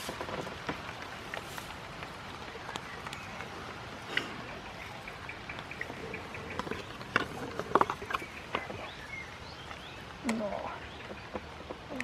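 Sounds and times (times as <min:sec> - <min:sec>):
light rain pattering: 0:00.0 - 0:12.0.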